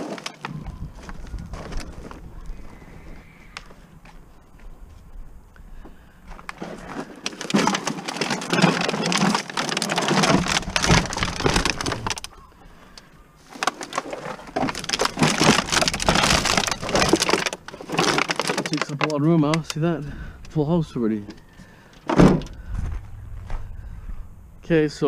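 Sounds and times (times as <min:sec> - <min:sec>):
plastic bags of bottles crinkling: 0:00.0 - 0:02.6, 0:06.3 - 0:22.7.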